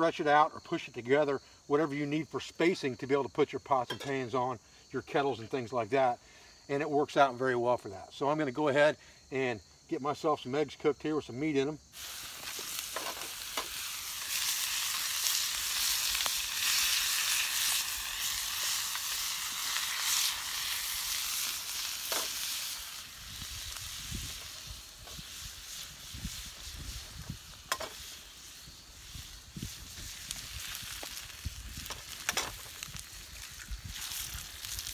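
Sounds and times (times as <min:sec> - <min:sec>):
beef sizzling in a frying pan: 0:11.8 - 0:34.9.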